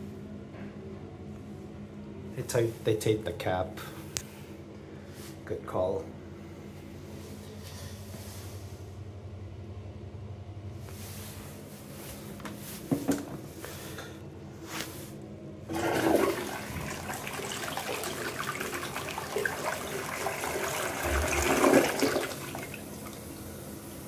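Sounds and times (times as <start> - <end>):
toilet flush clatter: 15.7 - 23.5
water rushing into toilet bowl: 15.7 - 23.5.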